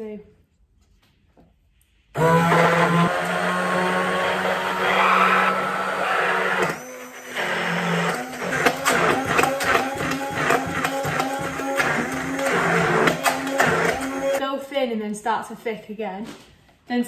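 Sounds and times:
hand blender motor whirring: 0:02.2 - 0:14.4.

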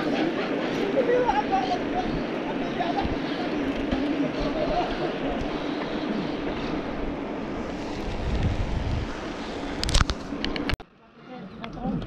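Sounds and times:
road rumble: 0:00.0 - 0:10.8
wind buffeting microphone: 0:01.1 - 0:10.8
bicycle clicks and rattles: 0:03.4 - 0:05.9, 0:09.6 - 0:10.8.

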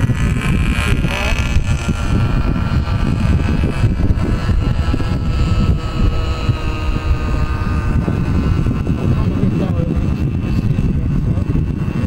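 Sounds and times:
model plane engine droning: 0:00.0 - 0:12.0
wind buffeting microphone: 0:00.0 - 0:12.0.

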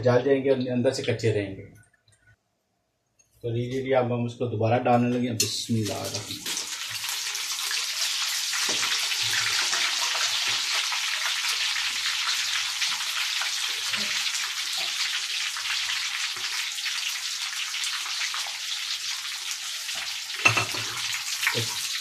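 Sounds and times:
oil sizzling and crackling: 0:05.4 - 0:22.0.

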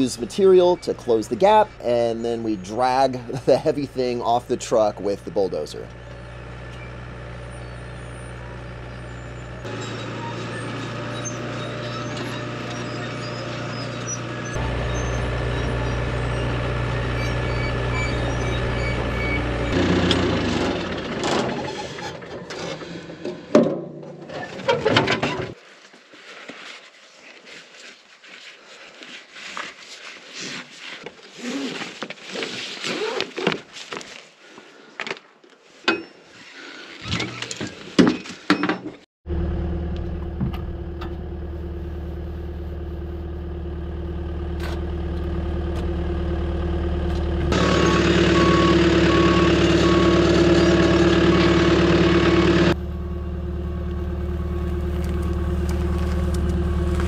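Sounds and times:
bulldozer diesel engine: 0:00.0 - 0:23.3, 0:39.3 - 0:57.0.

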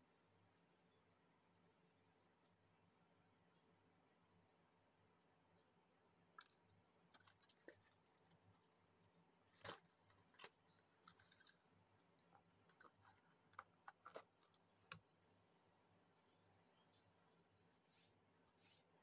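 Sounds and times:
paper clips rattling in box: 0:11.1 - 0:11.6.

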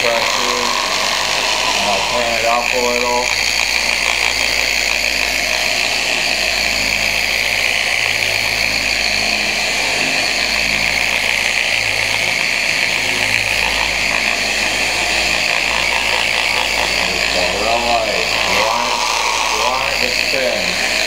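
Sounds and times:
electric car polisher whirring: 0:00.0 - 0:21.0.

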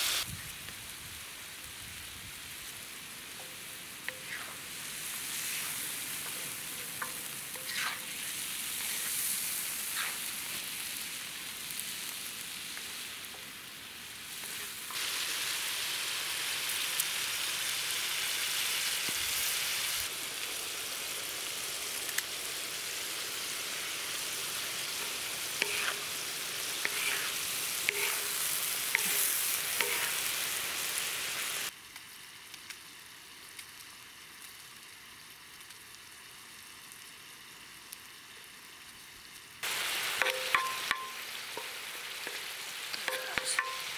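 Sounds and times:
meat sizzling in a pan: 0:00.0 - 0:43.9
spatula and knife scraping: 0:03.4 - 0:04.6, 0:05.3 - 0:10.3, 0:25.0 - 0:26.2, 0:26.8 - 0:30.4.

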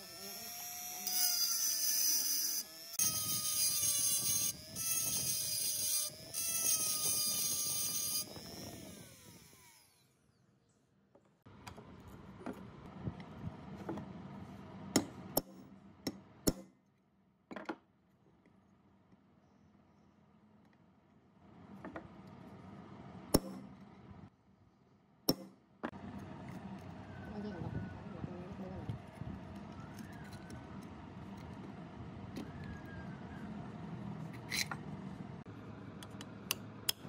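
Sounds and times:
rotary tool grinding metal: 0:00.0 - 0:10.2, 0:34.4 - 0:34.8.

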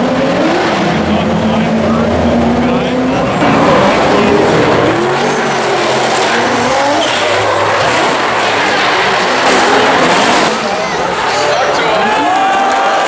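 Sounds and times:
engines revving hard: 0:00.0 - 0:13.0
tire squeal and skidding: 0:03.4 - 0:13.0.

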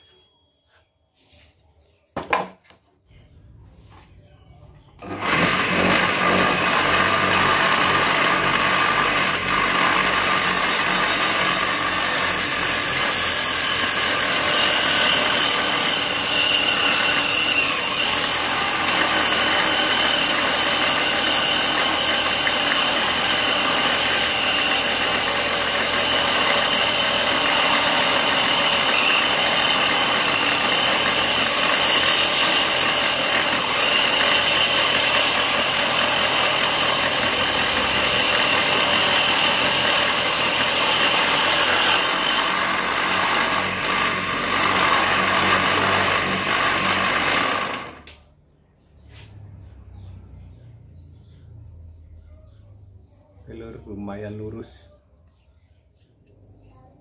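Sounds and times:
table saw cutting wood: 0:05.0 - 0:48.2.

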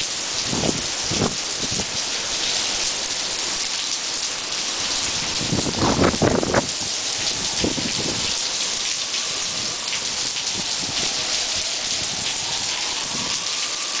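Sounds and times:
wind buffeting the microphone: 0:00.0 - 0:02.1, 0:04.8 - 0:08.5, 0:09.2 - 0:13.6
heavy rain hiss: 0:00.0 - 0:14.0.

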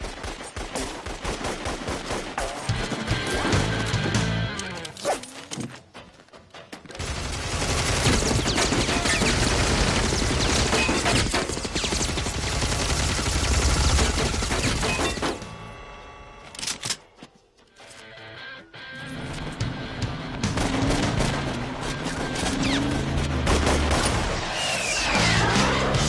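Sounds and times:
rapid gunfire: 0:00.0 - 0:03.8, 0:07.0 - 0:15.4, 0:20.4 - 0:25.0.

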